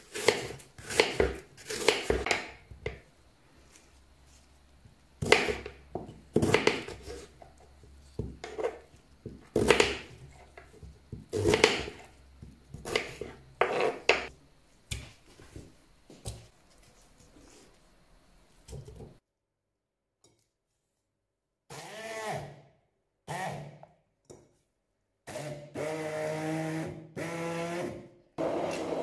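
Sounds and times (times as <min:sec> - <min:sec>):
knife slicing on wooden board: 0:00.1 - 0:02.2.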